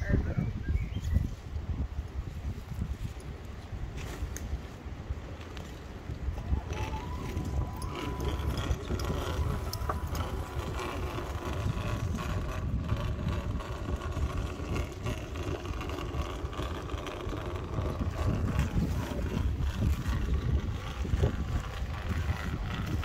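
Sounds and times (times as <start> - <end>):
wind rumble on microphone: 0.0 - 23.0
rc car motor whirring: 6.4 - 23.0.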